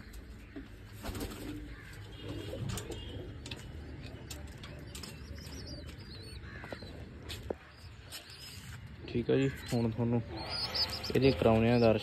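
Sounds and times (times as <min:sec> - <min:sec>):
pigeons cooing: 0:10.2 - 0:12.0.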